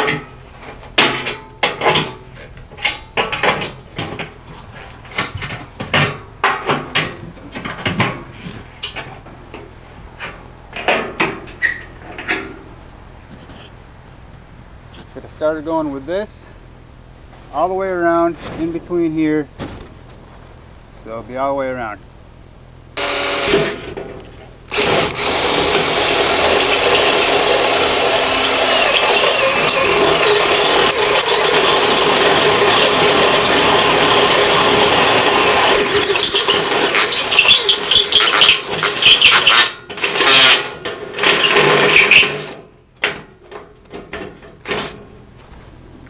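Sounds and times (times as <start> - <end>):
cordless drill boring steel: 23.0 - 23.8, 24.7 - 40.6.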